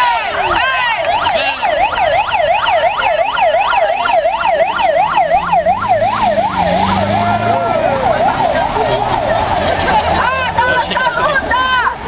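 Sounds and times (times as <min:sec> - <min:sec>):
electronic siren yelping: 0:00.0 - 0:10.4.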